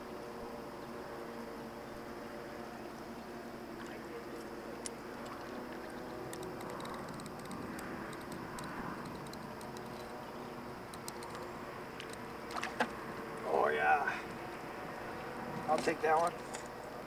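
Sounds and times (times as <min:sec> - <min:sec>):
fishing reel ticking: 0:04.8 - 0:12.2.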